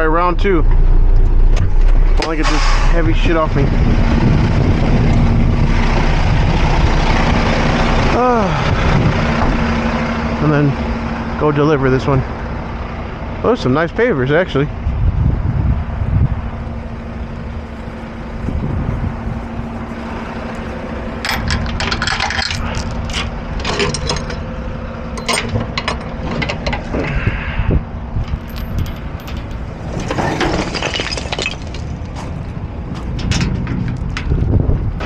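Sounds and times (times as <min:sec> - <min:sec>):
truck engine running: 0:00.0 - 0:35.0
metal latch and chain clanking: 0:21.2 - 0:24.5, 0:25.1 - 0:26.9, 0:28.2 - 0:31.8, 0:33.0 - 0:34.3.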